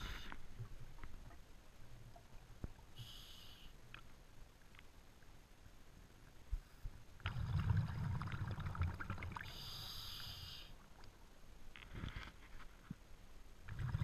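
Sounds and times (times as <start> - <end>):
regulator inhale hiss: 0.0 - 0.4, 3.0 - 3.8, 9.4 - 10.8
exhaled bubbles underwater: 7.2 - 9.7, 13.7 - 14.0.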